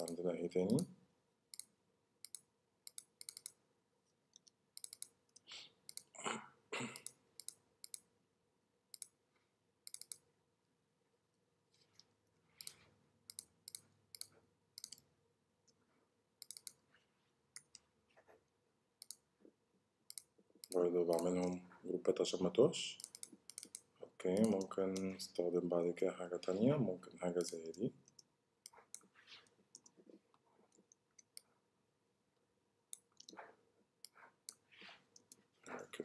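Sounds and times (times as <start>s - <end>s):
computer mouse clicks: 1.5s - 3.6s, 4.3s - 6.1s, 7.0s - 8.1s, 8.9s - 9.2s, 9.8s - 10.2s, 11.8s - 15.1s, 16.4s - 16.8s, 19.0s - 19.2s, 20.1s - 21.6s, 23.0s - 25.1s, 27.4s - 29.1s, 29.7s - 31.5s, 32.9s - 34.6s.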